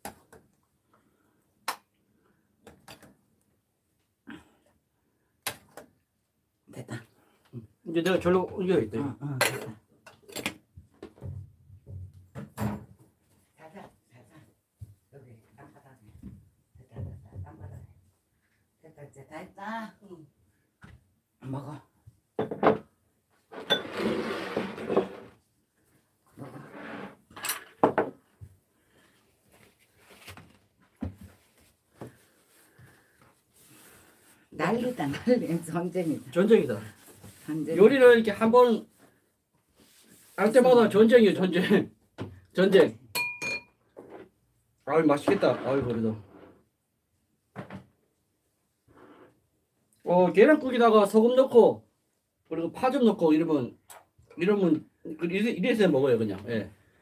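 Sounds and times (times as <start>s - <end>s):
plate scraping across wooden table: 23.5s - 25.3s, 26.4s - 27.2s, 45.2s - 46.6s
metal ladle clinking on bowls: 43.2s - 43.7s.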